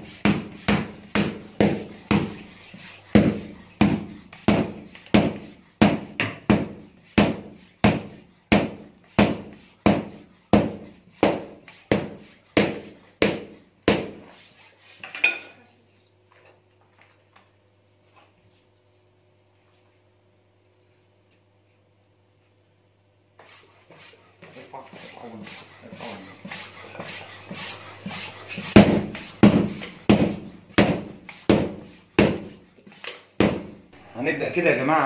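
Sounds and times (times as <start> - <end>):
stick beating carcass: 0.0 - 2.5, 3.1 - 14.2, 28.6 - 32.6, 33.4 - 33.8.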